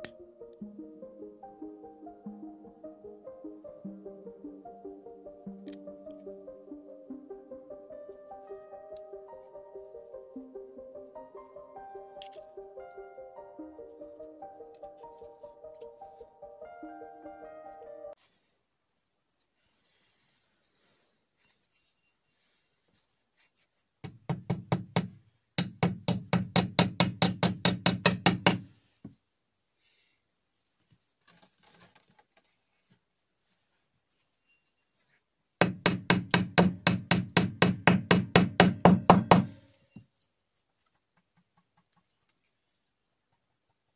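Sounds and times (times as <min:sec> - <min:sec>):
hammering on wooden beam: 0:24.0 - 0:28.7, 0:35.6 - 0:39.6.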